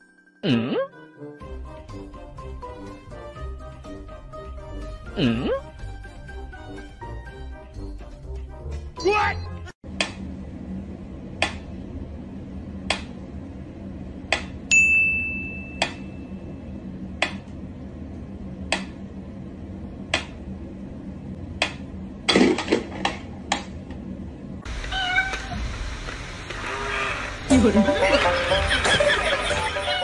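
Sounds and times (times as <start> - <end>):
bright ringing ping: 14.7 - 16.4.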